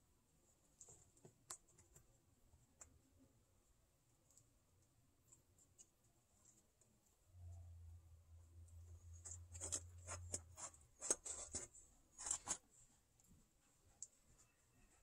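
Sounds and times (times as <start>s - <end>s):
low hum: 7.2s - 10.6s
kittens rustling paper: 9.2s - 12.7s.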